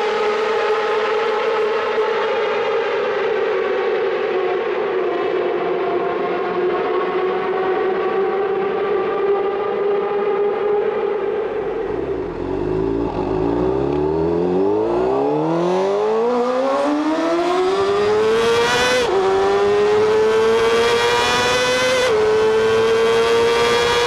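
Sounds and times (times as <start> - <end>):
motorcycle engine at full throttle: 7.6 - 24.0.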